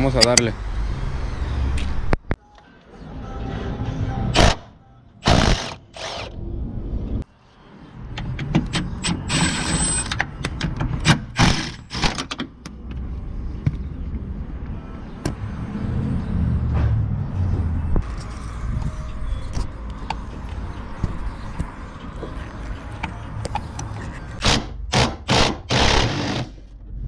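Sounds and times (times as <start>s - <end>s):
metallic socket clicks and clanks: 0.1s - 0.5s.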